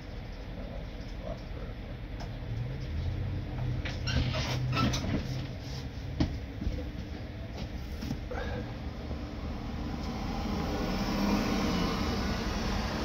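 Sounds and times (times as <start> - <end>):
heavy vehicle engine humming: 4.9 - 13.0.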